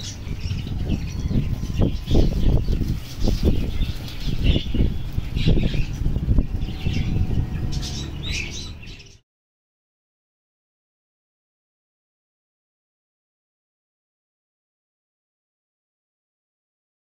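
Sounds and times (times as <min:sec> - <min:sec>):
small birds chirping: 0:00.0 - 0:09.2
wind buffeting microphone: 0:00.0 - 0:09.2.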